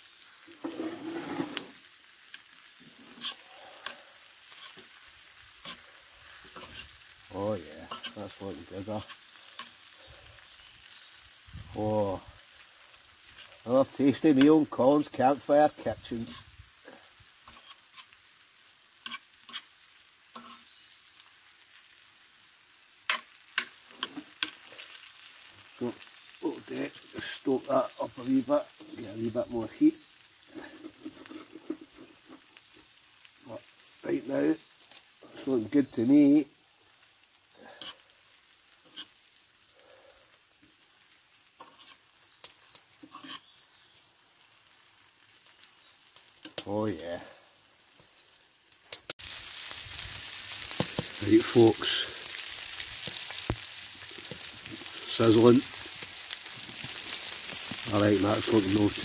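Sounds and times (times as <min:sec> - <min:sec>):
food sizzling in a frying pan: 0:00.0 - 0:59.0
spoon scraping a pan: 0:00.5 - 0:07.2, 0:07.8 - 0:10.6, 0:13.3 - 0:13.6, 0:16.1 - 0:16.5, 0:17.4 - 0:18.2, 0:19.0 - 0:19.7, 0:20.3 - 0:20.8, 0:23.1 - 0:25.0, 0:30.5 - 0:32.8, 0:37.7 - 0:38.1, 0:38.8 - 0:39.2, 0:41.6 - 0:43.6
utensil clicking against pan: 0:46.4 - 0:46.7.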